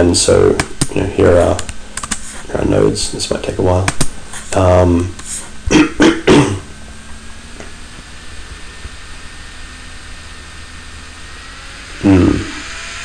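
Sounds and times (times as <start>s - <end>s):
faint low hum: 0.0s - 13.0s
steady hiss: 0.1s - 6.0s.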